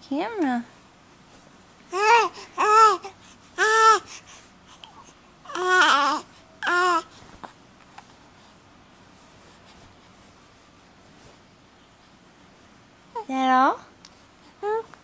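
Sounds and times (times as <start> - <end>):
baby cooing: 1.9 - 4.1, 4.8 - 7.1.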